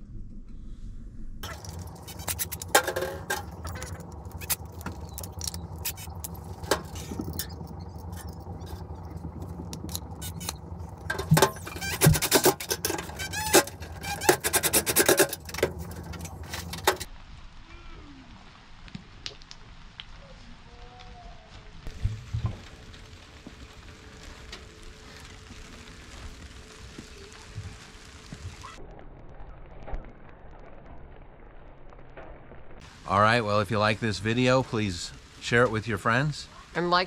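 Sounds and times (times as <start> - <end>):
steady low hum: 0.0 - 17.1
metal washers clinking and scraping: 1.4 - 17.1.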